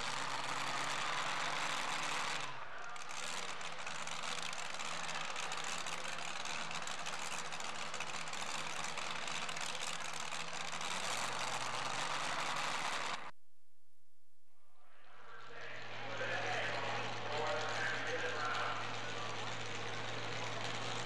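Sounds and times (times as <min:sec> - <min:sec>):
supercharged truck engine idling: 0:00.0 - 0:13.3, 0:15.4 - 0:21.0.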